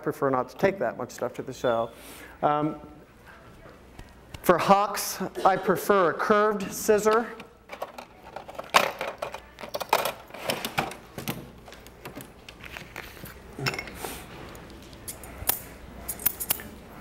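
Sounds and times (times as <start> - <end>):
metal tools clinking in a box: 15.1 - 16.8.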